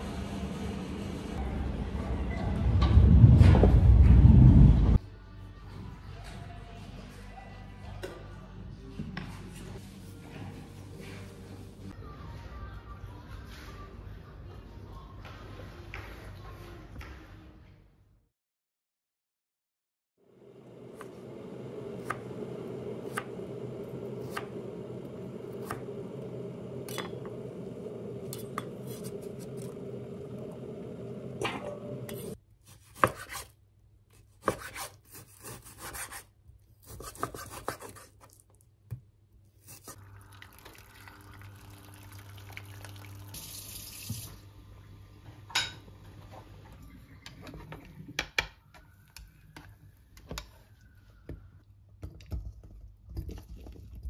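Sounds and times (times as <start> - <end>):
knife chopping on wooden board: 32.7 - 33.5, 34.4 - 36.2, 36.8 - 38.1.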